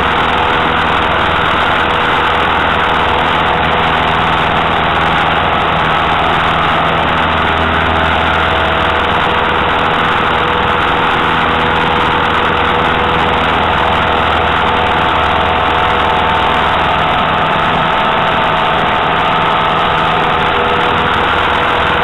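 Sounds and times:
aircraft piston engine drone: 0.0s - 22.0s.

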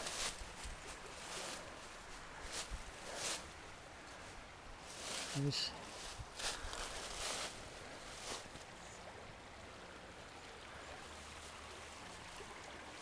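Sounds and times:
footsteps in dry leaves: 0.0s - 3.6s, 4.8s - 8.7s.

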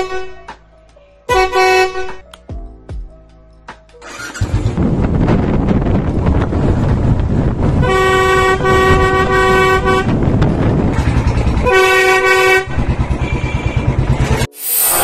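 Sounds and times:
air horn blasts: 0.0s - 0.4s, 1.3s - 2.2s, 7.8s - 10.2s, 11.6s - 14.0s
motorcycle engine running: 4.0s - 14.5s.

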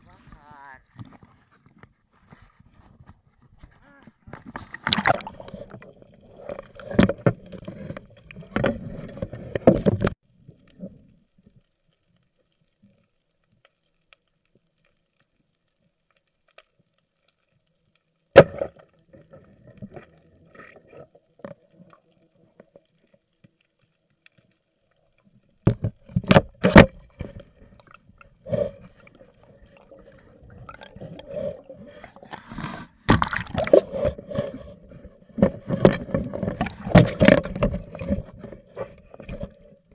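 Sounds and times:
water sloshing and gurgling: 4.2s - 11.6s, 18.3s - 39.9s.

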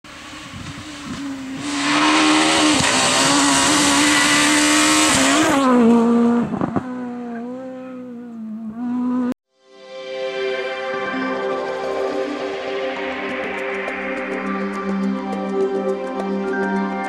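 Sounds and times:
rally car engine at high revs: 0.1s - 9.4s
grit spraying from tyres: 0.2s - 6.0s.

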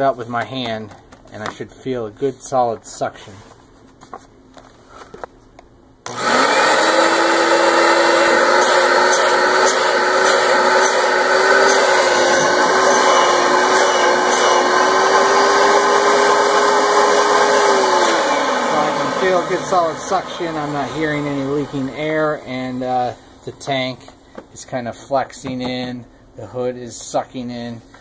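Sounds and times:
carpet cleaner vacuum motor running: 6.1s - 22.8s.

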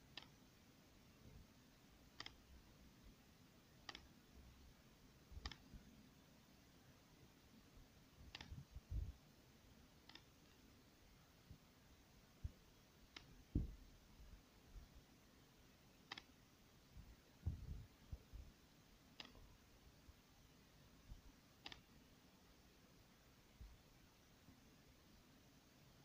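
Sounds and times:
faint sharp clicks: 0.1s - 0.4s, 2.2s - 2.4s, 3.9s - 4.1s, 5.4s - 5.8s, 8.3s - 8.6s, 13.1s - 13.6s, 16.1s - 16.4s, 19.2s - 19.5s, 21.6s - 21.9s
soft low thump: 13.5s - 13.8s, 17.4s - 18.4s.

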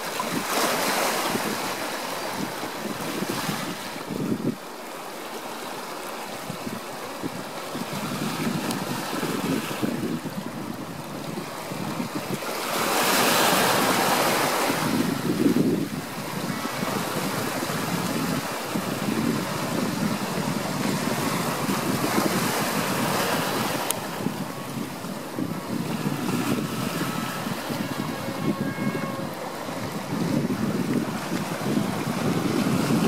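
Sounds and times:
rush of surf: 0.0s - 33.0s
waves splashing over rocks: 0.0s - 33.0s.

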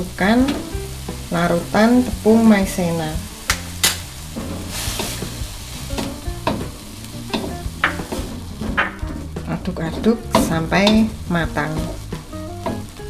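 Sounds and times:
food sizzling in a wok: 0.0s - 13.0s
spatula scraping a wok: 3.6s - 6.8s.

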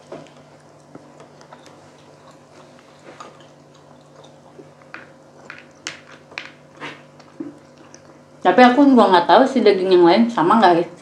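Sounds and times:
chewing and mouth smacks: 0.0s - 8.5s.

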